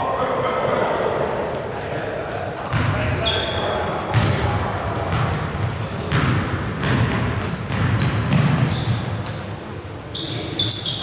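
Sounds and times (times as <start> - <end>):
sneakers squeaking: 0.7 - 11.0
basketball bouncing on hardwood: 4.1 - 9.1.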